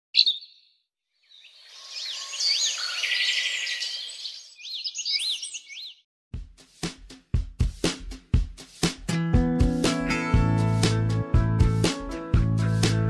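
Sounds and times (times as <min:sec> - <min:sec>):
birds chirping and twittering: 0:00.1 - 0:06.1
music with drumbeat: 0:06.3 - 0:13.0.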